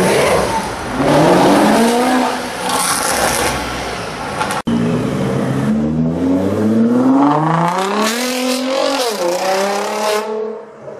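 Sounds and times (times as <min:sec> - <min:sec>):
sports car engine revving: 0:04.7 - 0:10.4.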